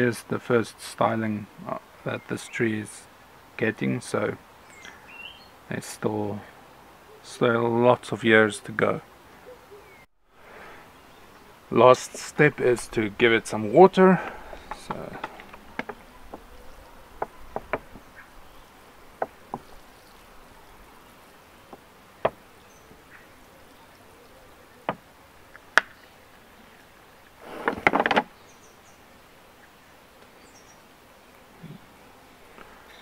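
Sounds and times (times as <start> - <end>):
water sprinkling onto gritty soil: 11.4 - 27.5.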